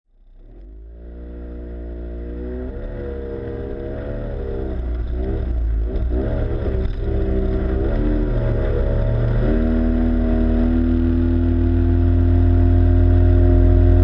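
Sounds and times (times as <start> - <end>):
outboard motor running: 3.6 - 14.0.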